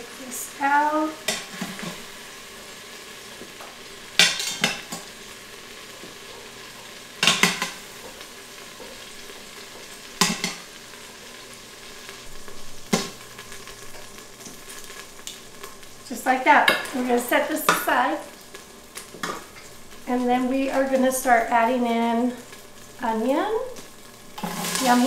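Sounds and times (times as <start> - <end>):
meat sizzling in hot oil: 0.0 - 25.0.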